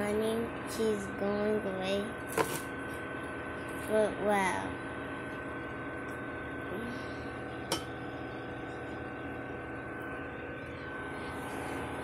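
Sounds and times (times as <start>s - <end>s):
room hum: 0.0s - 12.0s
thin high whine: 0.0s - 12.0s.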